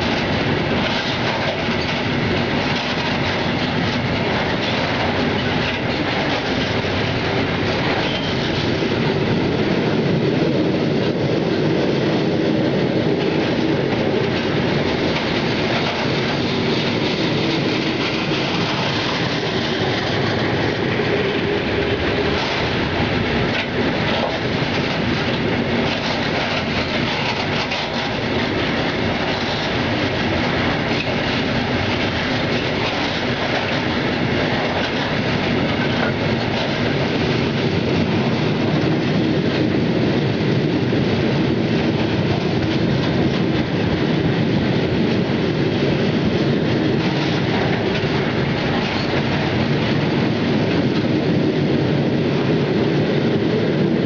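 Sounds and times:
wheels clacking over rail joints: 0.0s - 52.1s
freight train wheels rumbling: 0.0s - 54.0s.

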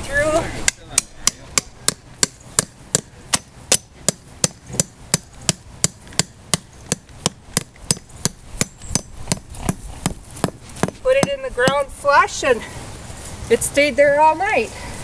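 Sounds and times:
tent stake being hammered: 0.6s - 11.9s.

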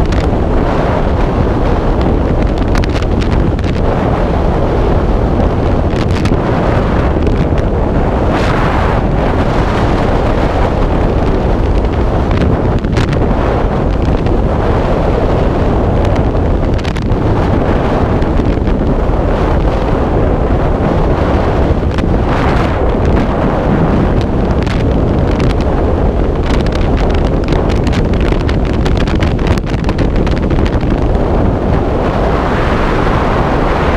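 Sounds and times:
wind rushing over microphone: 0.0s - 33.9s.

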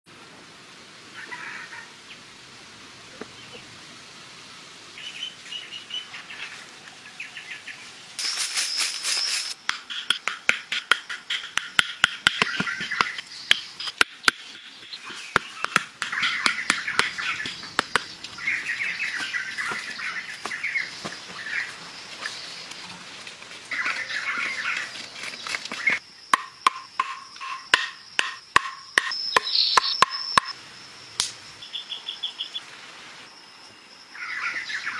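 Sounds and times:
small birds chirping: 4.9s - 7.9s, 11.0s - 23.0s, 23.7s - 26.0s, 26.6s - 30.6s, 31.6s - 32.6s
stakes being hammered: 9.6s - 14.7s, 15.3s - 18.1s, 26.4s - 30.5s.

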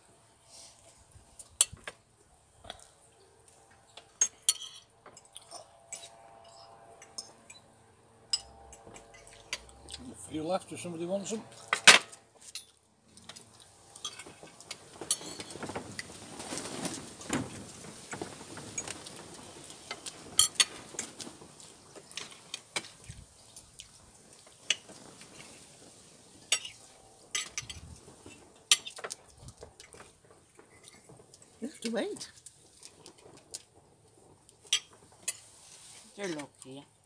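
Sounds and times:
knife and fork scraping plates: 4.2s - 7.6s.

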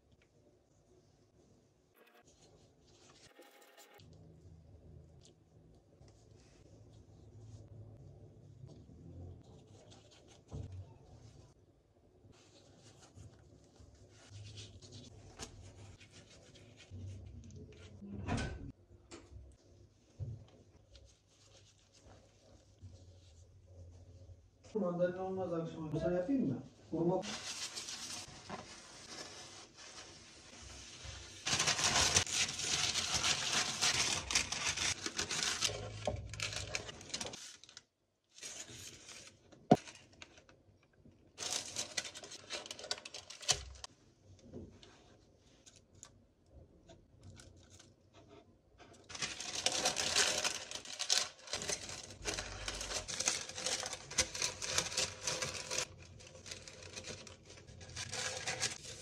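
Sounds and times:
baking paper rustling: 27.2s - 40.5s, 41.4s - 43.9s, 47.4s - 59.0s.

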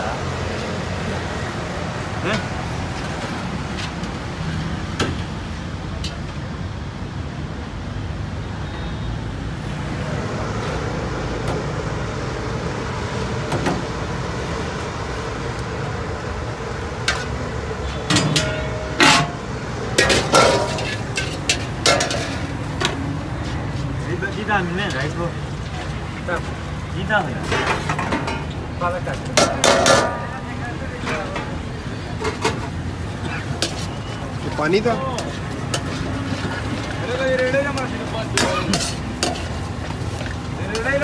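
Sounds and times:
roadside traffic: 0.0s - 41.0s
metal ladle clanking on wok: 17.0s - 23.1s, 29.3s - 30.3s, 33.4s - 41.0s.

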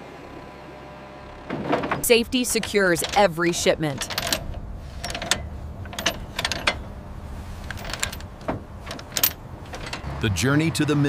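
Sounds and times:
ratchet and chain clanking: 1.8s - 6.9s, 7.5s - 10.2s
steady low rumble: 2.1s - 10.5s.

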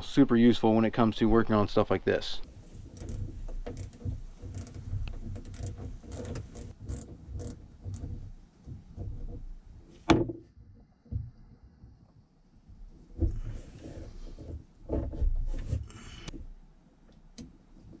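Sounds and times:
hand working metal fittings: 2.4s - 9.5s.

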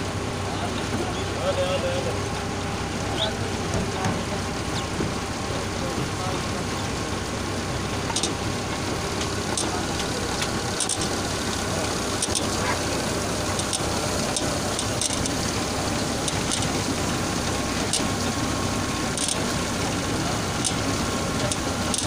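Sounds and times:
motor hum: 0.0s - 22.0s.

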